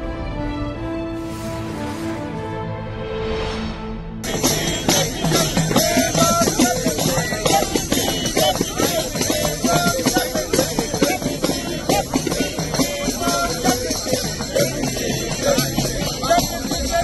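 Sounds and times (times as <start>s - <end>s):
frame drums beaten: 4.2s - 17.0s
group chanting in unison: 4.3s - 17.0s.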